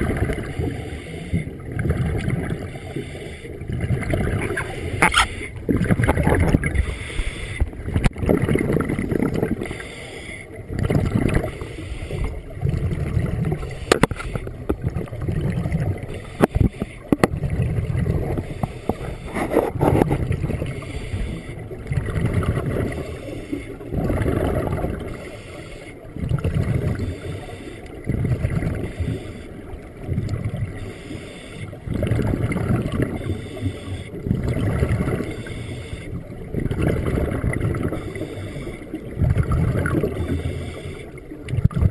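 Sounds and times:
scuba regulator breathing: 0.3 - 1.6, 2.5 - 3.6, 4.5 - 5.7, 6.6 - 7.9, 9.6 - 10.6, 11.4 - 12.5, 13.6 - 14.6, 16.1 - 17.3, 18.3 - 21.8, 22.7 - 23.9, 25.0 - 26.2, 26.9 - 28.0, 28.7 - 29.8, 30.7 - 31.9, 33.1 - 34.3, 35.2 - 36.3, 37.8 - 39.2, 40.0 - 41.3.

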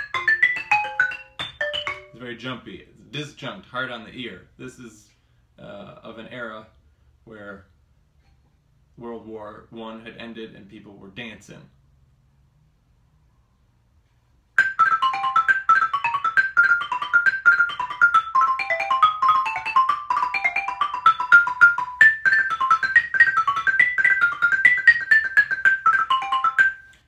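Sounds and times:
xylophone played fast: 0.0 - 2.3, 14.6 - 27.0.

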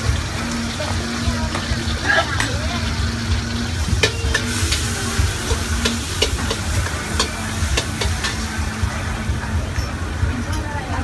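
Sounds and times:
sizzling hiss: 0.0 - 9.6
low burner rumble: 0.0 - 11.0
metal spoon clinking on wok: 4.0 - 8.5.

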